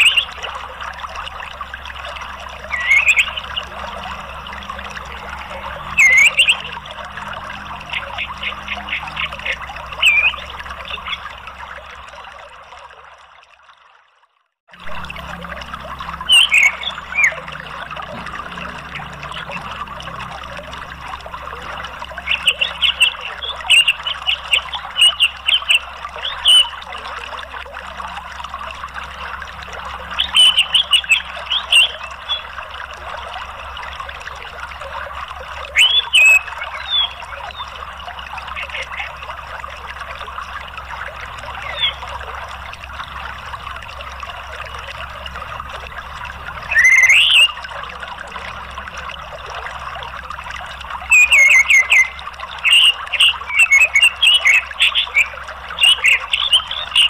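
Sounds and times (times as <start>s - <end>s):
high chirping calls: 0.0s - 0.4s, 2.6s - 11.3s, 16.2s - 17.8s, 21.6s - 26.7s, 30.2s - 32.4s, 35.7s - 37.7s, 41.5s - 42.1s, 46.6s - 47.7s, 51.0s - 57.0s
running water: 0.0s - 57.0s.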